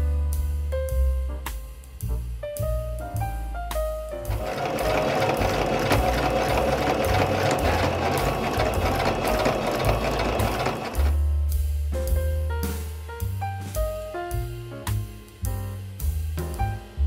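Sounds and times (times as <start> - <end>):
background music with bass: 0.0 - 17.0
sewing machine stitching: 4.3 - 11.2.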